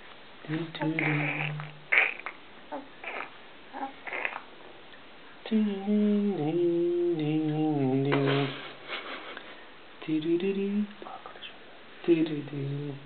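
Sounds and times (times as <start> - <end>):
person humming a tune: 0.5 - 1.8, 5.5 - 8.6.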